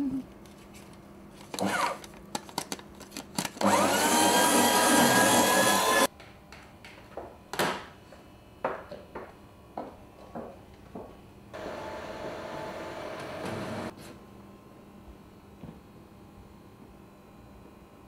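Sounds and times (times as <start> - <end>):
electric motor whining: 3.6 - 6.1.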